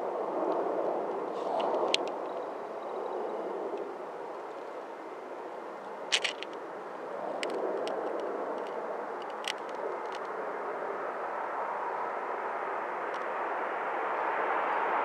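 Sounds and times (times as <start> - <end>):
distant jet aircraft rumble: 0.0 - 15.0
sharp clicks: 6.1 - 6.6.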